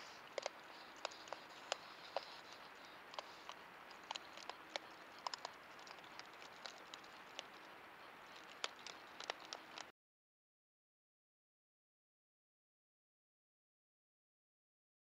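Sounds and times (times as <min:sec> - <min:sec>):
microphone hiss: 0:00.0 - 0:09.9
raccoons eating clicks and crunches: 0:00.0 - 0:09.9.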